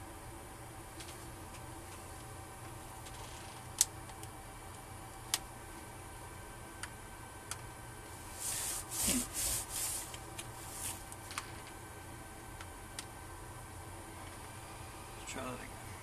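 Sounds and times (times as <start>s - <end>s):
hand rubbing over keyboard: 8.3s - 11.1s.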